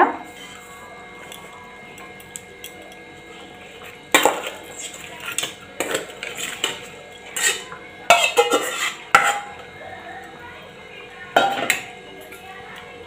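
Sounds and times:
metal spatula scraping metal bowl: 4.2s - 9.6s.

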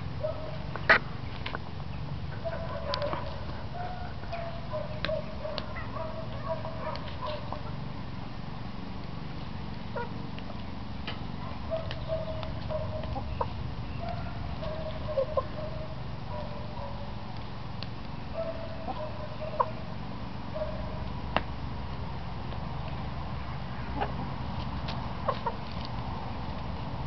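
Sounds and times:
hens clucking softly: 11.5s - 17.0s, 18.4s - 19.8s, 23.9s - 24.4s, 25.2s - 25.8s.

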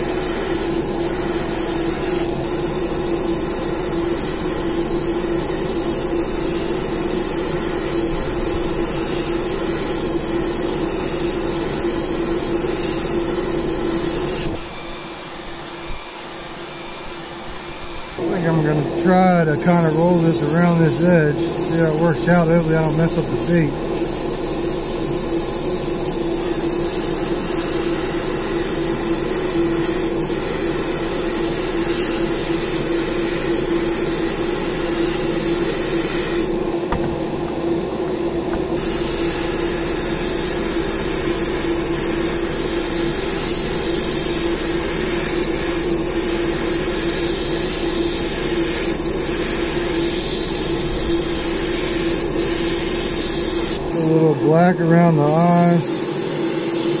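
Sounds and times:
airbrush air hiss: 0.0s - 14.7s, 19.0s - 36.6s, 38.7s - 54.2s, 55.1s - 57.0s
small electric motor whirring: 38.8s - 53.8s.

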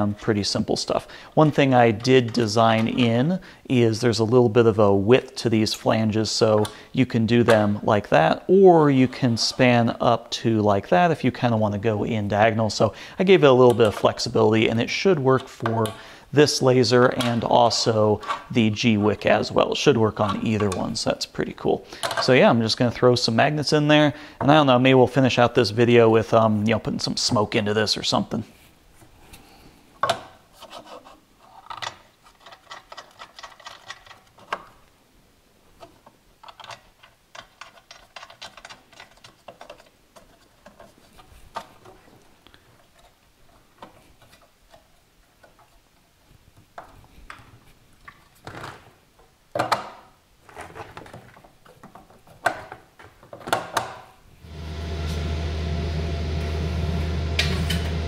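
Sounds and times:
plastic and metal clicks and knocks: 35.8s - 40.9s, 49.5s - 54.1s
fan humming: 54.4s - 58.0s.

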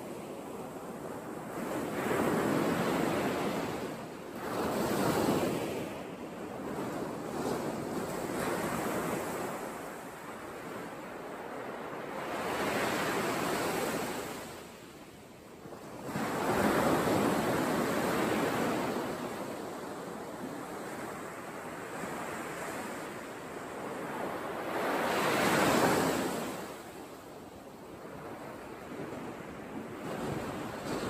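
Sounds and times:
sea surf breaking on shore: 20.6s - 27.1s.

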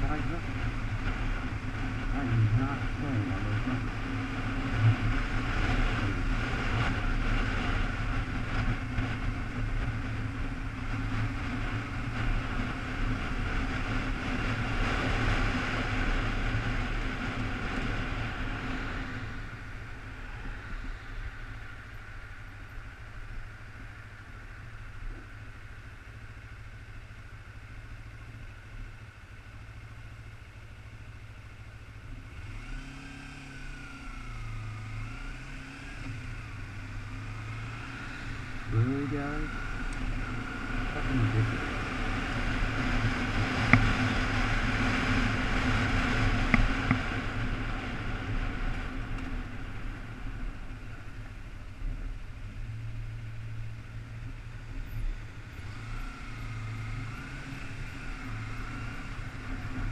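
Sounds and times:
motorcycle engine: 0.0s - 59.9s.

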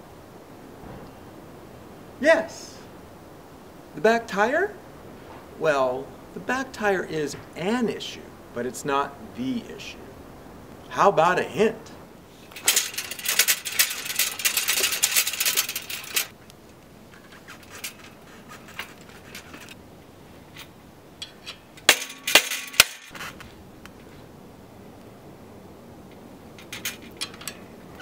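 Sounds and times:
bicycle saddle rattling: 12.4s - 16.4s, 17.1s - 19.8s, 20.4s - 23.3s, 26.5s - 28.0s
handlebar metallic clicks and clunks: 12.5s - 16.3s, 20.5s - 23.2s, 26.1s - 28.0s.

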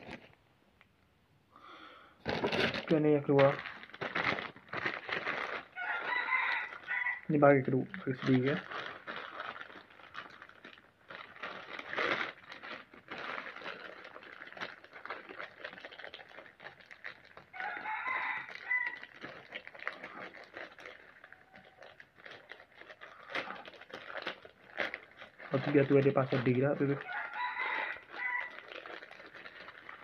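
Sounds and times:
packaging rustling and crinkling: 0.0s - 0.4s, 2.2s - 30.0s
rooster crowing: 5.8s - 7.3s, 17.6s - 19.1s, 27.0s - 28.6s.

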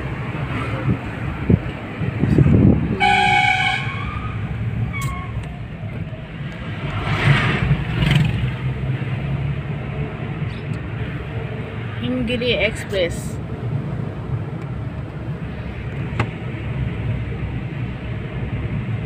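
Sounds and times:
bus passing: 0.0s - 19.0s
car engine and road noise: 0.0s - 19.0s
vehicle horn: 2.9s - 4.4s.

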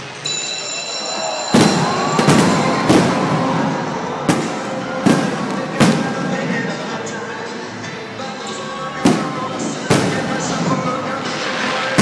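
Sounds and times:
background music: 0.0s - 12.0s
fireworks bursting: 1.4s - 7.3s, 8.9s - 12.0s.

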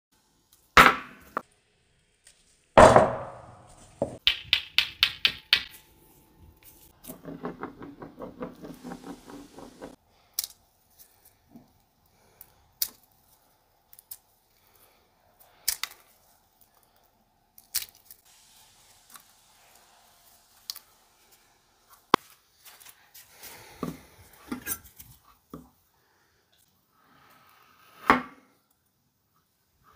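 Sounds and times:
shell pieces clicking and snapping: 4.2s - 5.8s, 10.3s - 10.6s, 15.6s - 16.1s, 17.6s - 18.2s
egg knocked on wooden board: 7.2s - 10.0s.

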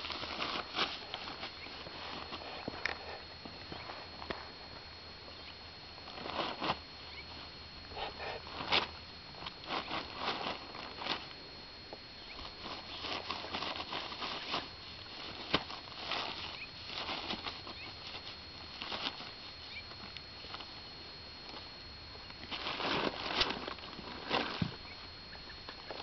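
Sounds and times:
tarp crackling and rustling: 0.0s - 2.9s, 8.0s - 11.4s, 12.3s - 20.8s, 22.4s - 24.9s.

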